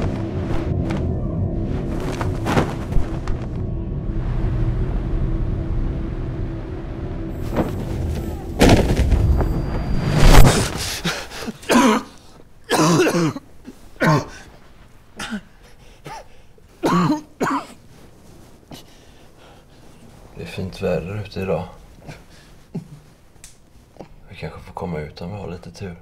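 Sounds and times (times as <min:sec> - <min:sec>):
loud low rumble: 0:00.0 - 0:11.1
man coughing and gasping: 0:11.0 - 0:14.5, 0:15.2 - 0:17.8, 0:22.0 - 0:23.0.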